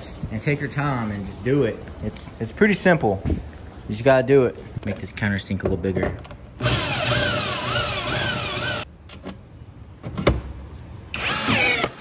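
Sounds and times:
drill whining cutting metal: 6.6 - 8.9, 11.1 - 12.0.

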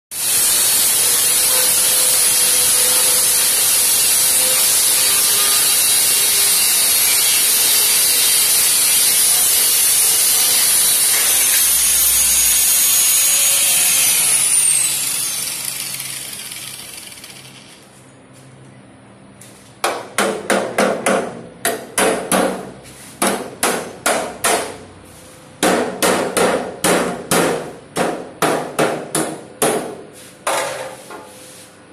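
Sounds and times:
angle grinder cutting steel: 0.1 - 17.8.

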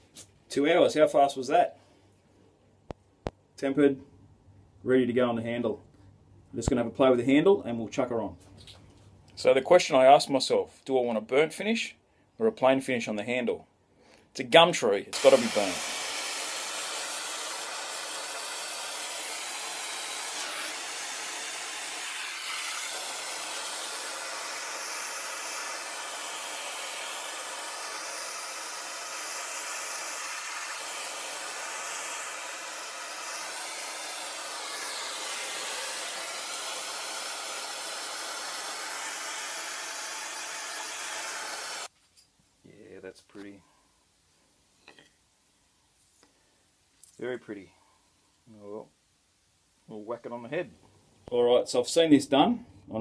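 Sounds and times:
blowtorch hissing: 15.2 - 41.9.

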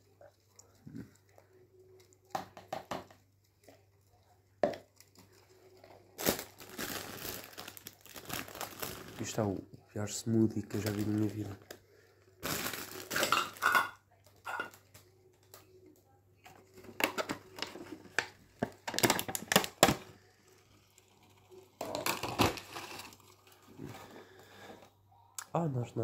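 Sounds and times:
plastic bag crinkling: 4.9 - 9.6, 10.2 - 13.9, 16.6 - 24.8
plastic containers clicking: 16.9 - 20.1.

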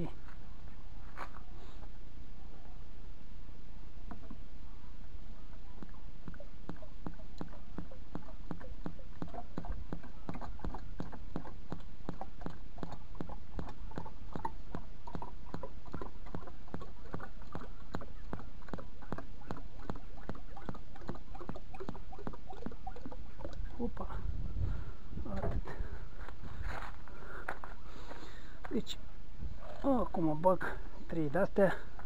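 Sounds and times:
oil glugging from plastic jug: 18.3 - 24.1.

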